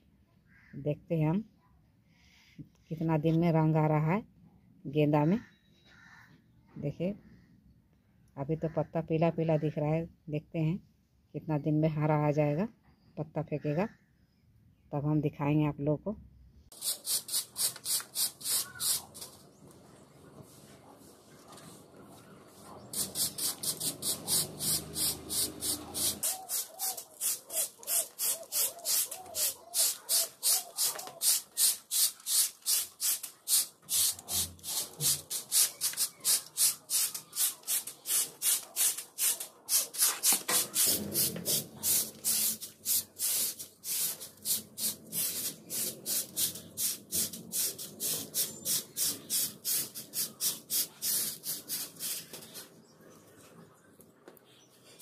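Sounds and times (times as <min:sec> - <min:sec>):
broom sweeping concrete floor: 0:16.7 - 0:52.9.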